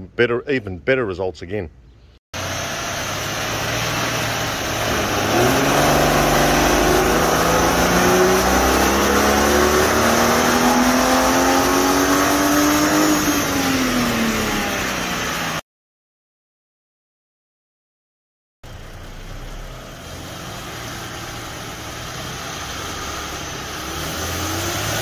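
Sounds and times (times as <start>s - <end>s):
car engine revving: 2.4s - 15.6s, 18.7s - 25.0s.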